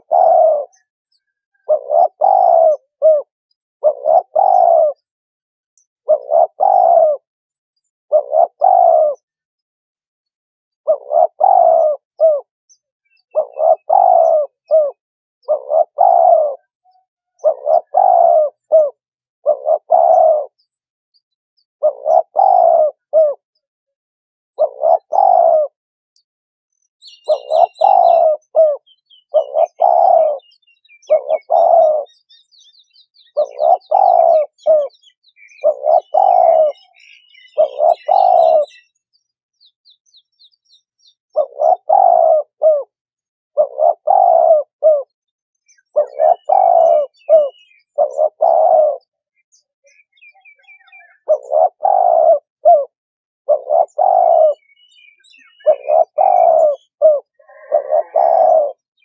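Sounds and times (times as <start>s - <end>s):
dove cooing: 0.0s - 5.1s, 6.0s - 9.4s, 10.8s - 12.5s, 13.1s - 20.9s, 21.8s - 23.7s, 24.6s - 25.8s, 27.0s - 39.0s, 41.3s - 59.0s
small birds chirping: 0.0s - 5.2s, 5.8s - 23.7s, 24.6s - 59.0s.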